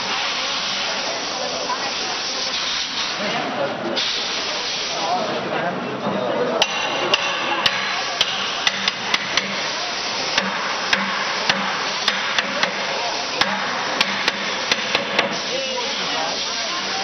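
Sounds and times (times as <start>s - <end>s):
steady workshop hum: 0.0s - 17.0s
hammer tapping on barrel: 6.6s - 9.6s, 10.4s - 12.8s, 13.4s - 15.4s.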